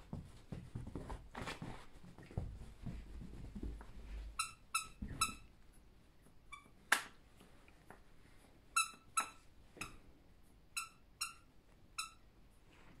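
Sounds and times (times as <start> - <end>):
squeaky dog toy squeaking: 4.4 - 5.5, 8.8 - 10.0, 10.8 - 12.3.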